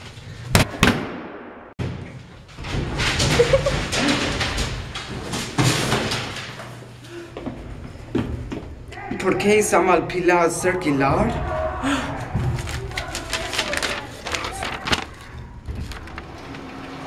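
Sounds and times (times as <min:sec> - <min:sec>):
heavy door banging: 0:01.8 - 0:06.6
footsteps in stairwell: 0:01.8 - 0:09.3.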